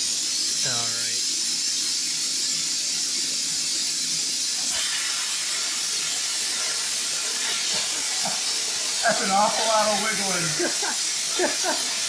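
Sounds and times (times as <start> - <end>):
plasma torch cutting steel: 0.0 - 12.0
compressed air hissing: 4.5 - 12.0.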